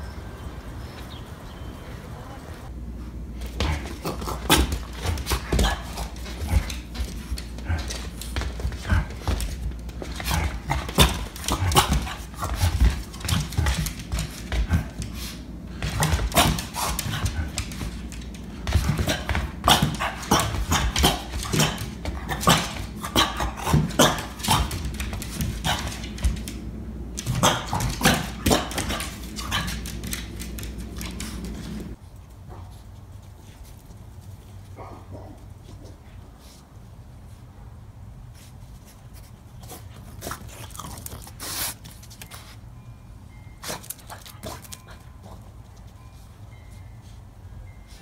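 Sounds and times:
dog nails clicking on wooden floor: 0:03.8 - 0:32.0
dog barking excitedly: 0:19.0 - 0:24.8, 0:27.2 - 0:29.9.

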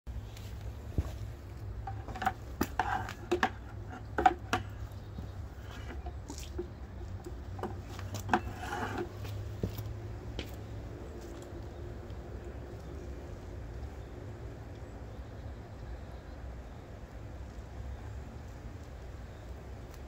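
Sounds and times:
hose fitting clicks and knocks: 0:01.8 - 0:09.1.

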